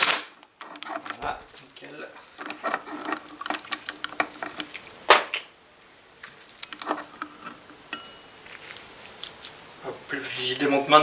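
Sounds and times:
small metal parts clicking: 0.0s - 1.5s, 2.2s - 4.9s
sharp metal clack: 7.9s - 8.3s.

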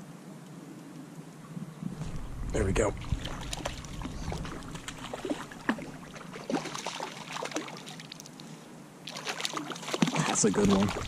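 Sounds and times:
fish thrashing and splashing water: 2.0s - 8.4s, 9.0s - 11.0s.

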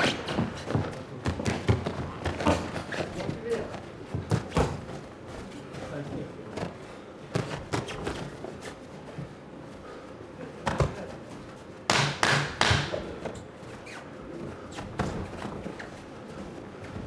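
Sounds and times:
low hall background: 0.0s - 17.0s.

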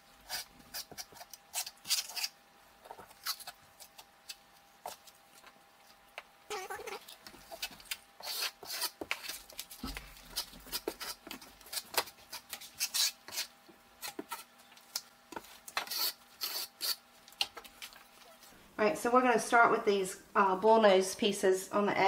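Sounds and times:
trowel scraping tile adhesive: 10.3s - 14.5s, 15.8s - 17.0s.

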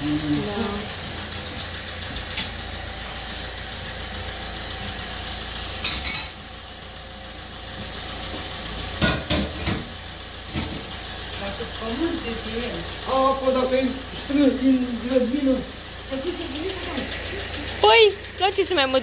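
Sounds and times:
food sizzling in a pan: 4.8s - 11.4s
dishes and utensils clattering: 5.8s - 6.4s.

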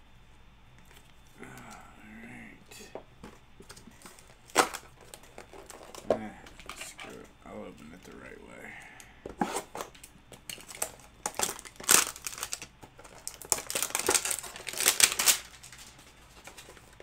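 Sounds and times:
wrapper torn open and crinkled: 10.5s - 16.6s.

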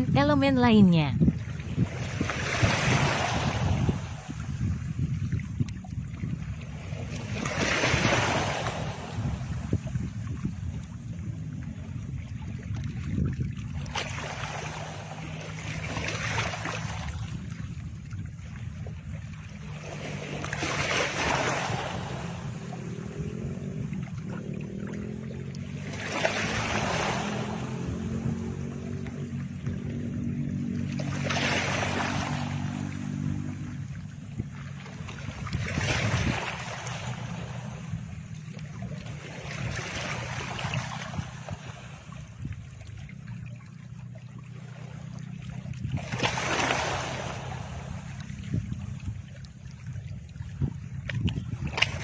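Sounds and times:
low hum: 8.4s - 46.1s.

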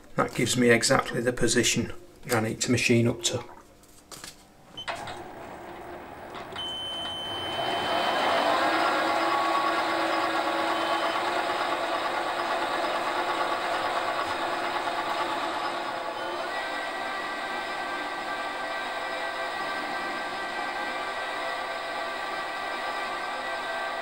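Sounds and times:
thin high whine: 4.7s - 24.0s
metal lathe running: 5.0s - 24.0s.

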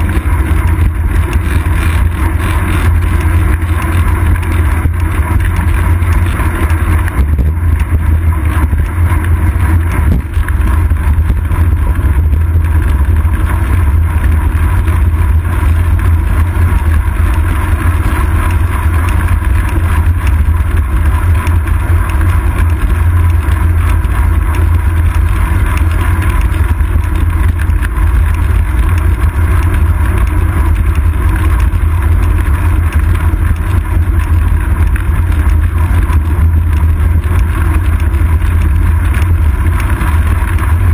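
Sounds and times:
wind buffeting while cycling: 0.0s - 40.9s.

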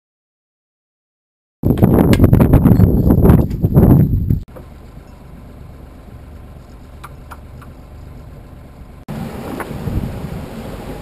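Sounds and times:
wind buffeting microphone: 1.6s - 4.5s, 9.3s - 11.0s
boat engine running: 4.5s - 11.0s
water: 9.1s - 11.0s.

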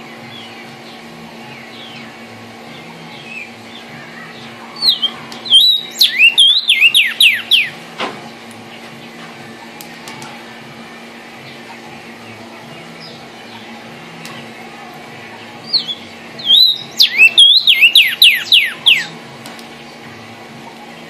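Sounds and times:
steady low hum: 0.0s - 21.0s
bird whistling song: 2.8s - 7.8s, 15.6s - 19.2s.

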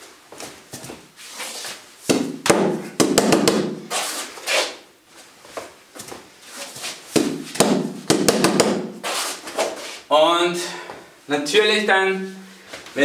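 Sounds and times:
hands striking padded wall bag: 2.1s - 3.8s, 7.1s - 9.0s.

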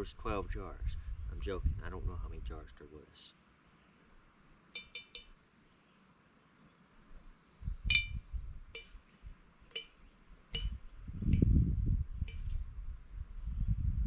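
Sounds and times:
fork clinking in glass jar: 4.8s - 5.4s.

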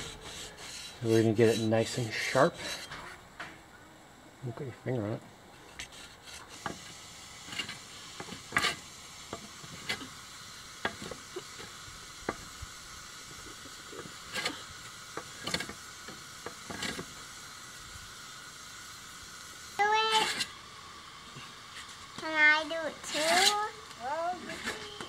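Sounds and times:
hand plane shaving wood: 0.0s - 2.9s
steady background hiss: 0.0s - 25.0s.

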